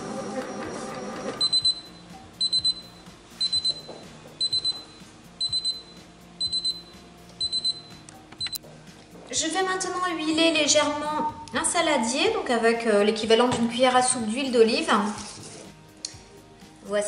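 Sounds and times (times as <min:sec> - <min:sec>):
high-pitched triple beeps: 0:01.4 - 0:08.6.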